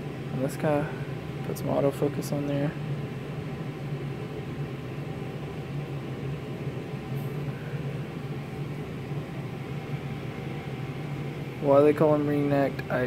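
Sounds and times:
ventilation hum: 0.0 - 13.0.

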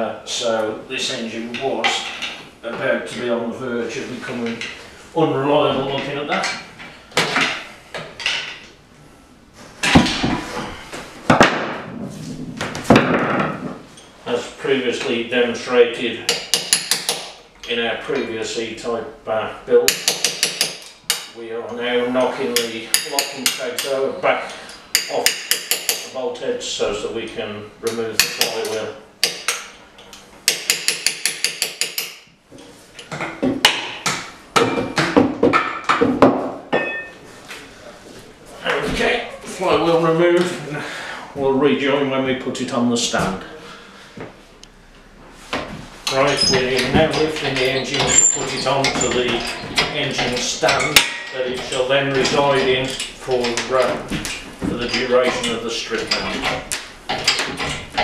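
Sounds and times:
sharp metal clanks: 46.1 - 53.6.

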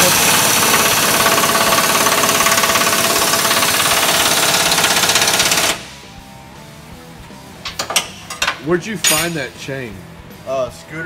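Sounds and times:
impact wrench rattling: 0.0 - 5.9.

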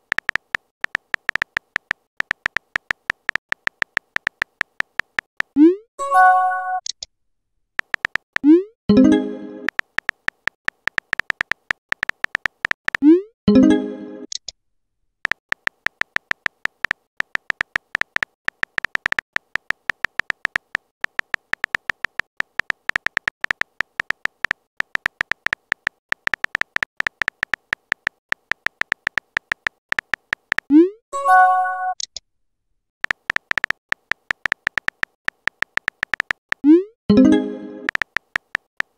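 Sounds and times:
phone keyboard tap clicks: 0.0 - 5.5, 7.8 - 8.2, 9.7 - 13.0, 15.3 - 30.7, 33.0 - 36.6, 37.9 - 38.9.

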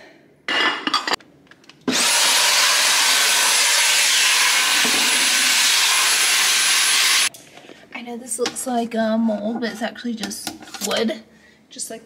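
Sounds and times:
handheld vacuum motor whine: 1.9 - 7.3.

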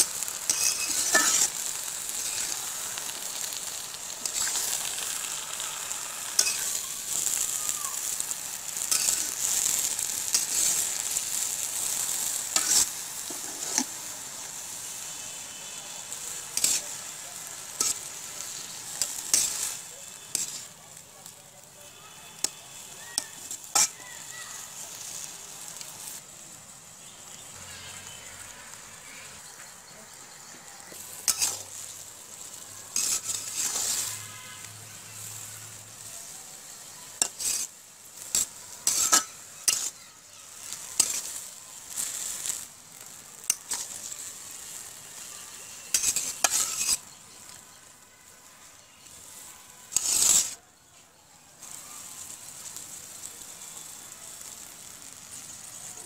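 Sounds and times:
metal spatula scraping pan: 0.0 - 13.9, 16.5 - 17.1, 17.7 - 20.7, 23.2 - 24.0, 30.9 - 31.9, 32.9 - 35.4, 37.1 - 40.0, 40.6 - 42.6, 43.4 - 47.1, 49.9 - 50.6
greens sizzling in hot oil: 0.0 - 56.0.

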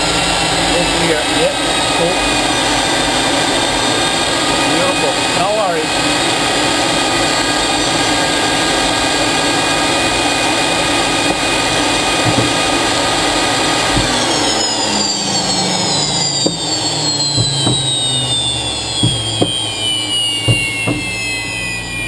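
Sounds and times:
jet engine whining and spooling down: 0.0 - 22.0.

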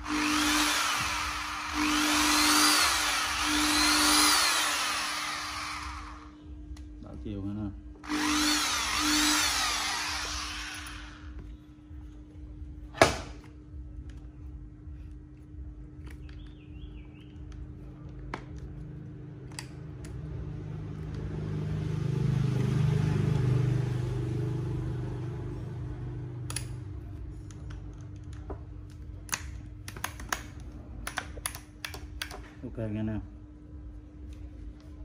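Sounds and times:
vehicle passing by: 20.5 - 26.5.

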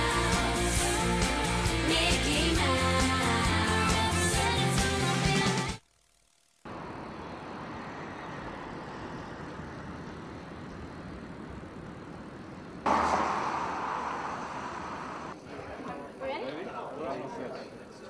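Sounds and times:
steady outdoor rush: 6.7 - 15.4.

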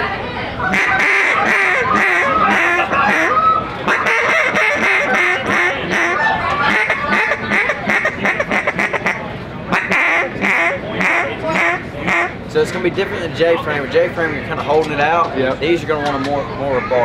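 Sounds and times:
duck call quacks: 0.6 - 12.4.

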